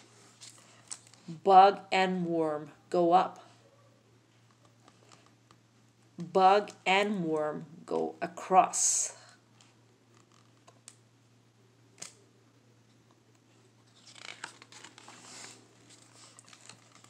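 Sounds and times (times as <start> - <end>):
book page turning: 13.4 - 17.0.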